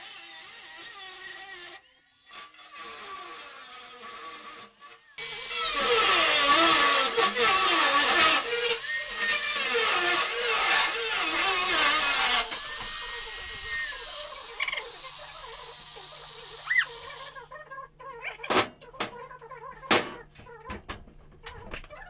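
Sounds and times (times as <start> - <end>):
power tool cutting sheet metal: 0.0 - 17.6.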